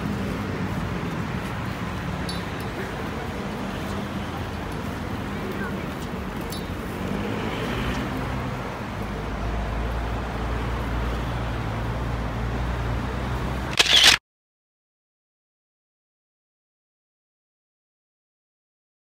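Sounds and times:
traffic engine hum: 0:00.0 - 0:14.2
short loud burst of noise: 0:13.7 - 0:14.2.

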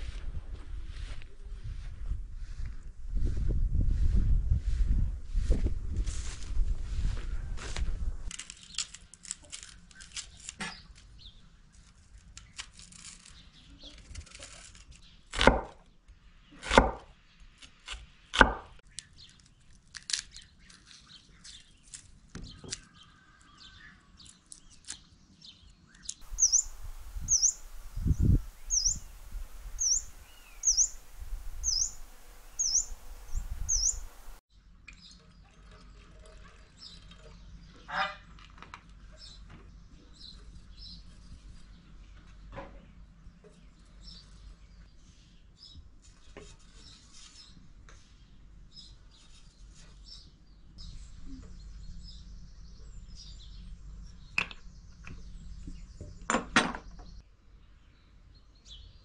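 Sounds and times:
small bird chirping: 0:25.9 - 0:34.4
background hiss: 0:26.2 - 0:34.4.

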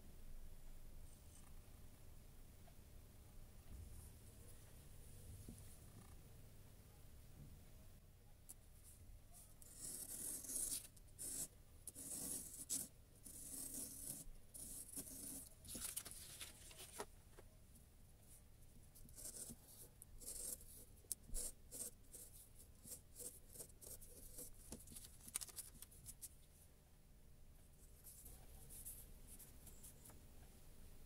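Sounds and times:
circle cutter scratching paper: 0:09.6 - 0:15.5.

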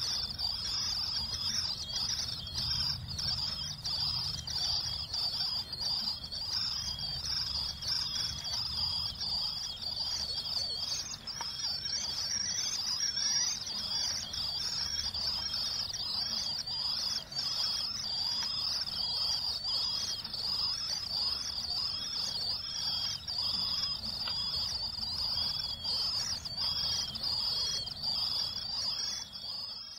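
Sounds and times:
nestlings peeping shrilly: 0:00.0 - 0:29.9.

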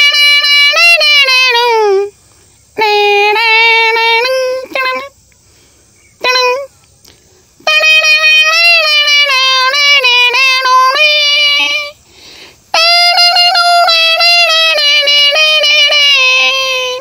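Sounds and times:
man imitating a harmonium: 0:00.0 - 0:02.1, 0:02.8 - 0:05.2, 0:07.6 - 0:12.0, 0:12.7 - 0:17.0.

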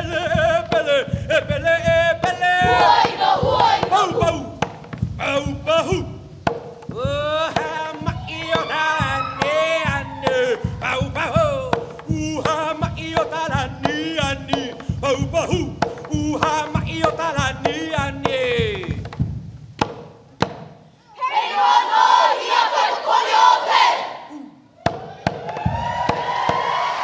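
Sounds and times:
sharp drum strikes: 0:00.0 - 0:20.9, 0:24.8 - 0:27.0
voices chanting: 0:02.4 - 0:04.6, 0:07.6 - 0:11.4, 0:21.0 - 0:27.0.

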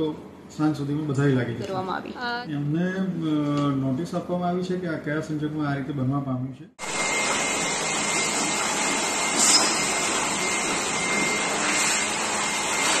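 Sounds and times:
electric air blower running: 0:06.8 - 0:13.0.

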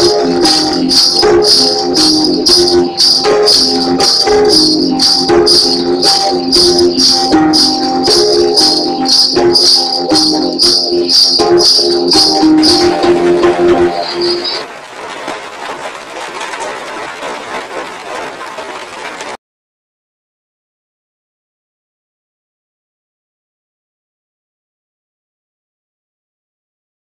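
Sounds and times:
slow melody of held notes: 0:00.0 - 0:14.5
shaker beat: 0:00.0 - 0:18.2.

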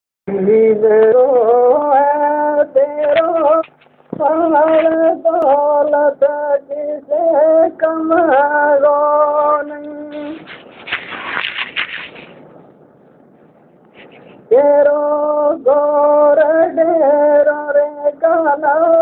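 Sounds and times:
man singing unaccompanied: 0:00.3 - 0:10.4, 0:14.5 - 0:19.0.

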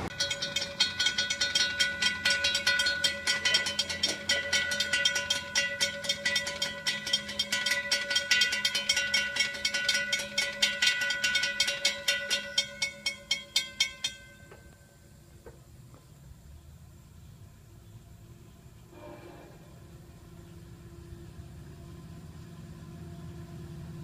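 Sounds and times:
railroad crossing bell ringing: 0:00.0 - 0:15.2.

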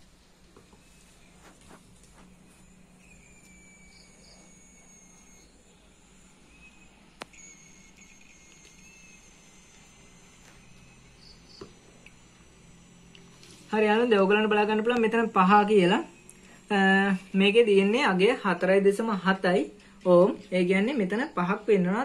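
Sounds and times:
faint high thin tones: 0:00.6 - 0:11.2.

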